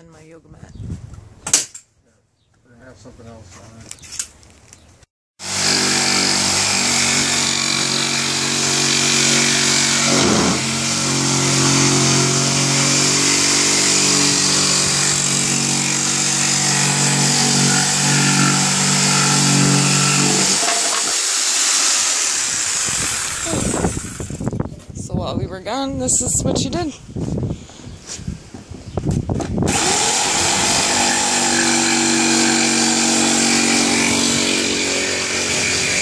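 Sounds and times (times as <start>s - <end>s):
power saw cutting wood: 5.4s - 24.4s, 29.7s - 36.0s.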